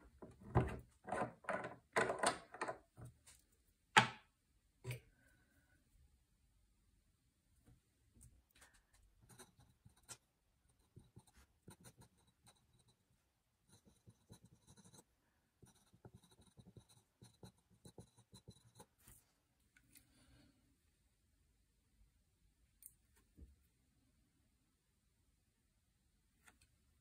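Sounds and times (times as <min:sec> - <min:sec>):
pen scratching on paper: 0:09.2 - 0:19.2.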